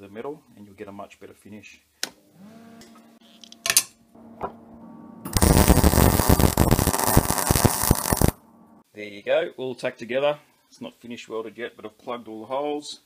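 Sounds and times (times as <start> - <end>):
welder humming: 2.4 - 8.8
welding arc crackling: 5.3 - 8.4.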